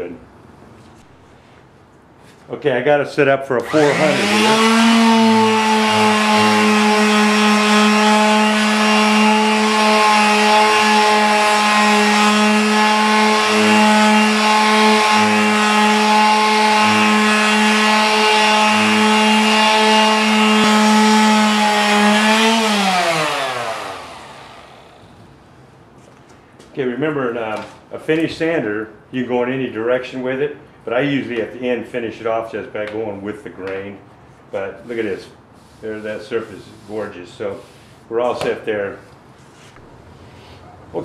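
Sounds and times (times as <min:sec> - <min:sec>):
sander whine spinning down: 0:03.6 - 0:25.3
palm sander humming: 0:03.6 - 0:25.4.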